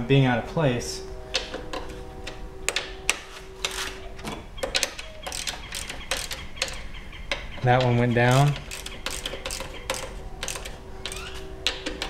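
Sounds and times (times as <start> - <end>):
hand ratchet pawl clicking: 4.6 - 6.8, 7.6 - 12.0.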